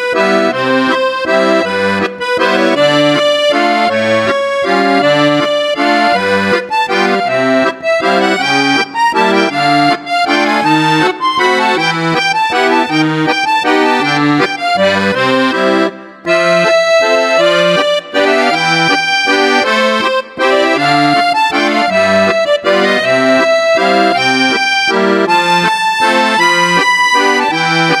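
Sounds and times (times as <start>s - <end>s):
instrumental music with bouncing bass: 0.0s - 28.0s.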